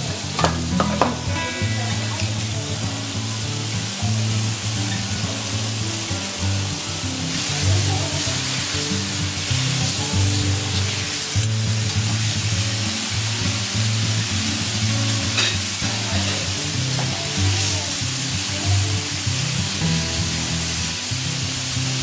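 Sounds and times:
steak sizzling on a griddle: 0.0s - 22.0s
background music: 0.3s - 13.1s.

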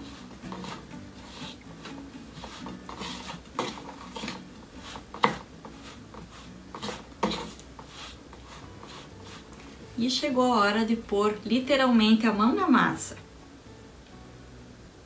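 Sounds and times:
spoon scraping metal bowl: 0.0s - 1.6s, 2.3s - 9.6s.

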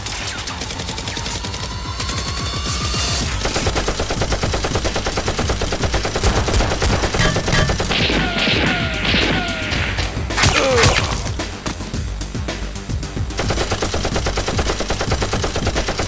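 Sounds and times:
automatic gunfire: 3.2s - 9.8s, 13.4s - 16.0s
ricochet whines: 3.2s - 11.8s.

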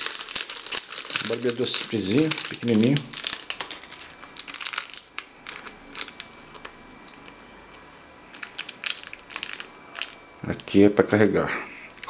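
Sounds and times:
plastic bag crinkling: 0.0s - 7.4s, 8.3s - 10.8s.

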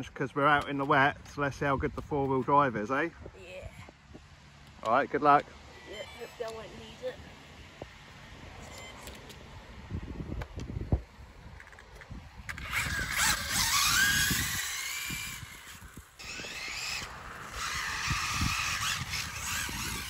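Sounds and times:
electric motor whining: 12.5s - 20.0s.

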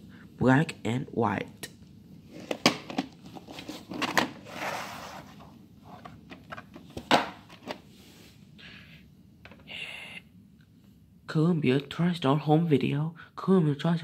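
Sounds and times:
cassette sliding out of box: 2.3s - 7.8s.

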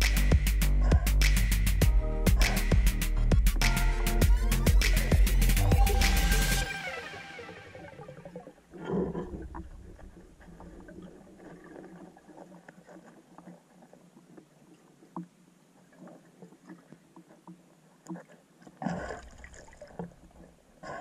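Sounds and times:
muffled underwater water noise: 7.6s - 21.0s.

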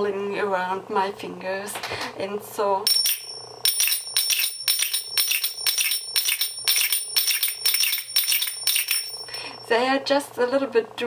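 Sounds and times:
finger cymbals striking: 2.9s - 9.7s.

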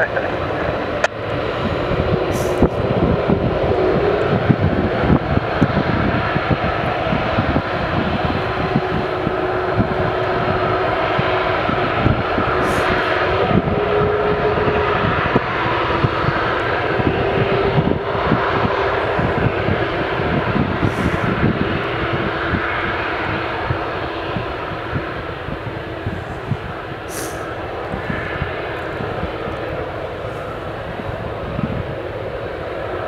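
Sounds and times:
jet engines rumbling with whine: 0.0s - 33.0s.

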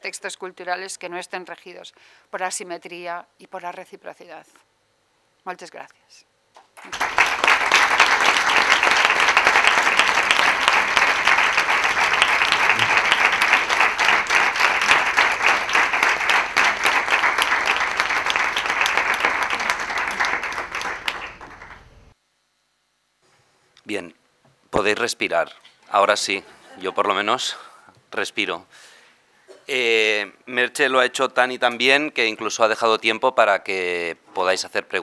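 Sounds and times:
audience applauding: 6.8s - 22.1s.

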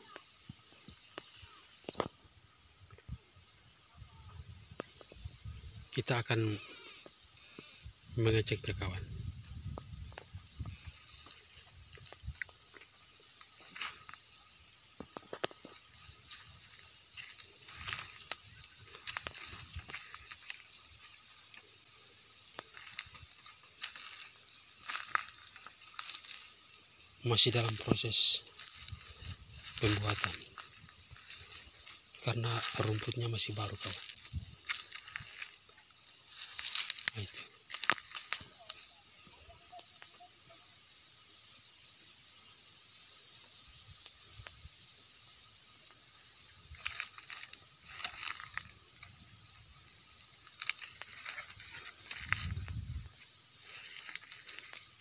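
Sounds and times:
steady high hiss: 0.0s - 55.0s
dry grass and twigs crunching: 0.1s - 2.3s, 8.8s - 40.2s, 45.9s - 55.0s
twigs snapping: 15.0s - 21.2s, 22.5s - 26.8s, 33.7s - 38.8s, 46.7s - 49.3s, 50.3s - 52.8s.

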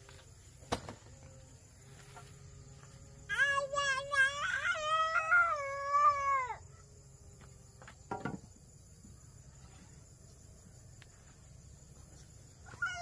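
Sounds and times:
dull knock: 8.1s - 8.5s.

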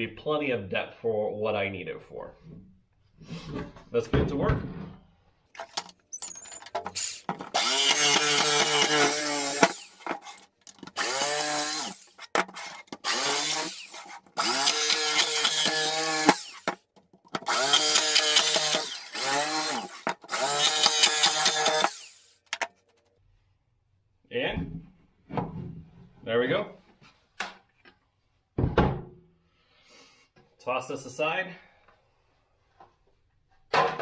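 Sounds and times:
jigsaw cutting plastic: 5.6s - 22.9s.

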